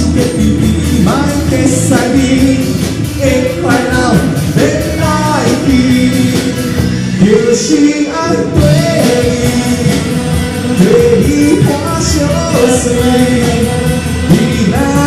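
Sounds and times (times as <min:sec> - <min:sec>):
live pop-rock band playing: 0:00.0 - 0:15.0
person singing: 0:00.0 - 0:15.0.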